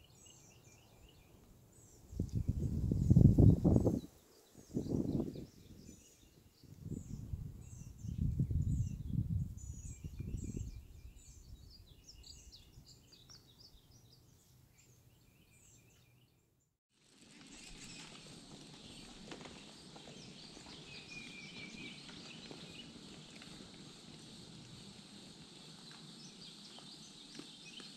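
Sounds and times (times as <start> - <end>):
steady outdoor hiss: 0.0 - 6.8, 17.0 - 27.9
small birds chirping: 0.0 - 16.6, 17.5 - 27.9.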